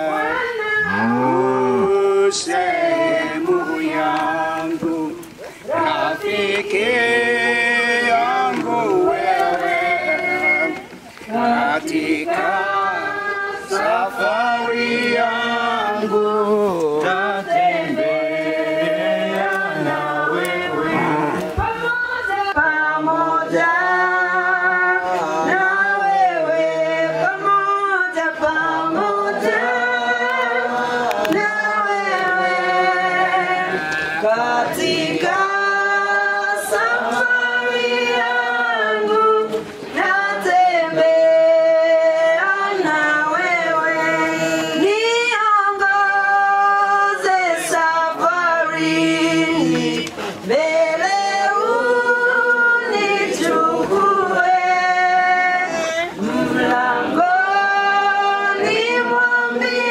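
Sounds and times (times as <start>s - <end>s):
group of voices singing: 0.0s - 59.9s
singers breathing: 5.4s - 5.7s.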